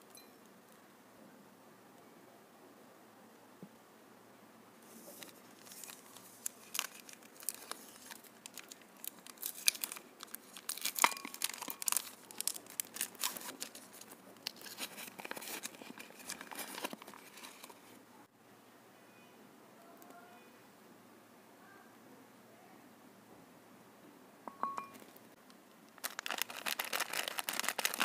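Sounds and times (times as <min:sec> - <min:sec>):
foil wrapper crinkling and tearing: 0:05.1 - 0:17.9, 0:25.9 - 0:28.0.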